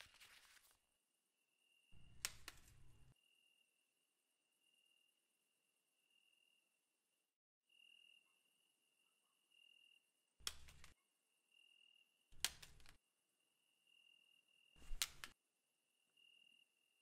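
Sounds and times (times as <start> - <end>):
crickets chirping: 7.7 - 10.2, 11.4 - 12.2, 13.4 - 14.8, 15.9 - 17.0.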